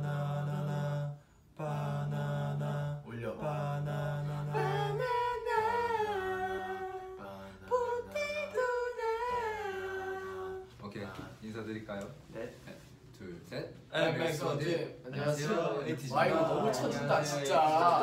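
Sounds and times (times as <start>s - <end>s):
higher voice singing: 0.0s - 10.7s.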